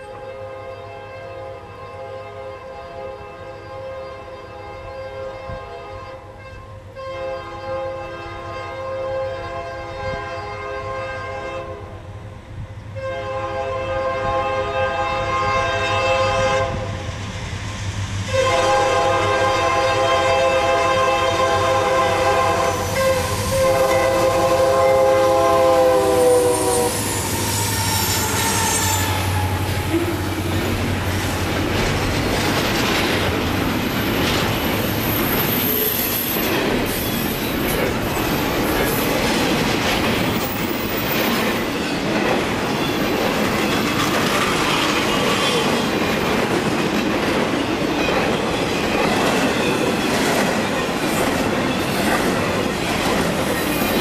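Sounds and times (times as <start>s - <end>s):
locomotive horn blast: 0.0s - 11.9s, 13.0s - 16.9s, 18.3s - 30.7s
train wheels clattering on rails: 16.7s - 54.0s
wheel squeal: 26.5s - 29.9s.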